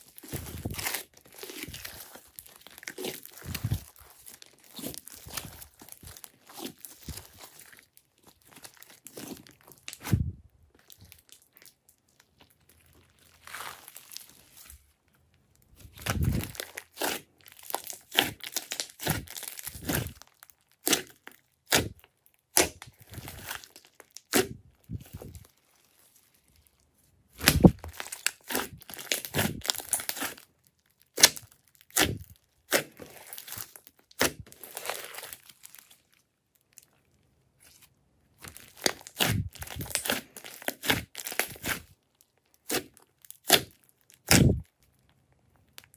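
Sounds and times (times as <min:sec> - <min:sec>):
slime crackling and popping: 0:00.0 - 0:45.9.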